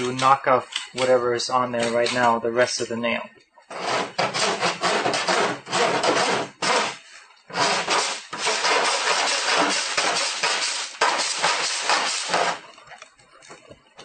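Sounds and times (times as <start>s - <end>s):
file rasping on metal: 3.7s - 12.6s.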